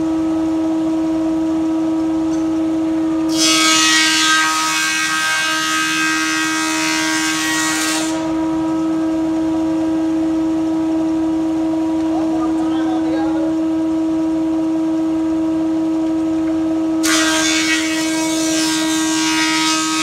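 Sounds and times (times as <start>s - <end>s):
thickness planer humming: 0.0s - 20.0s
planer cutting wood board: 3.3s - 8.6s, 17.0s - 20.0s.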